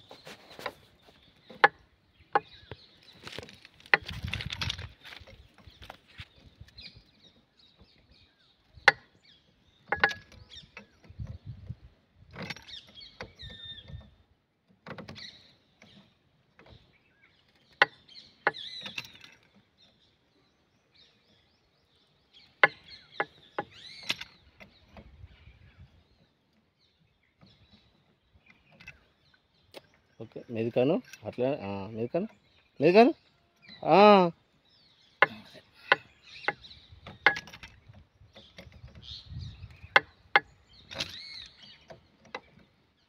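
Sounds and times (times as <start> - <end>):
spanner knocking on steel: 9.9 - 10.4, 22.6 - 24.2, 35.2 - 37.8.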